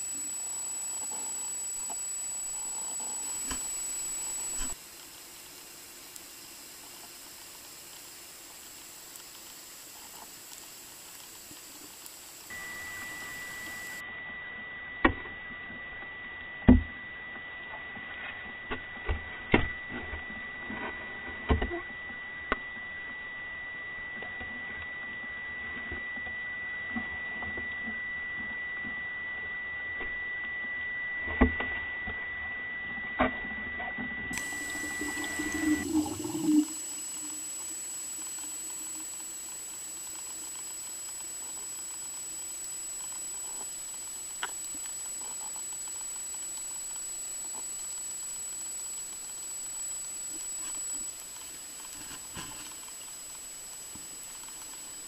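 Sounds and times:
high-pitched tone: 12.5 - 14.0.

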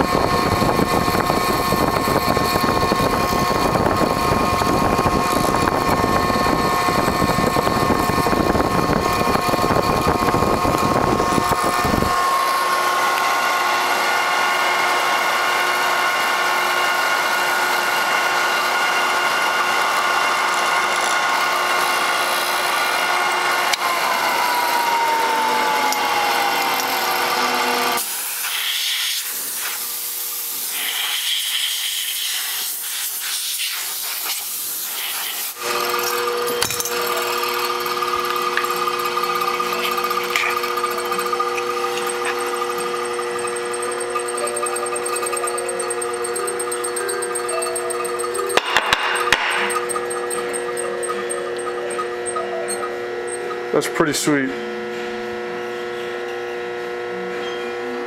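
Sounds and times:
machinery whining: 0.0 - 33.2, 33.9 - 58.0
mortiser cutting wood: 0.0 - 33.2, 33.9 - 52.5
motor winding down: 0.0 - 58.0
air nozzle hissing: 28.0 - 35.6.

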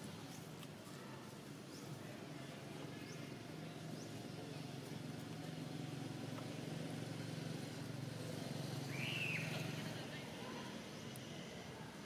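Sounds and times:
engine idling hum: 2.5 - 12.0.

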